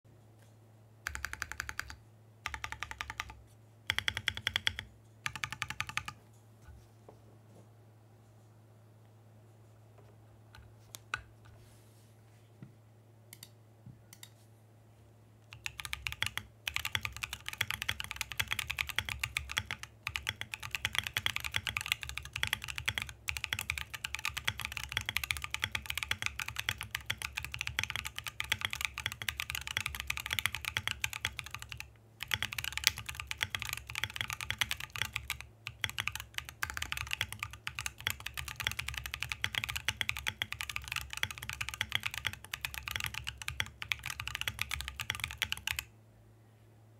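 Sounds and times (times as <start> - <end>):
mechanical keyboard typing: 1.0 - 6.2, 15.5 - 45.9.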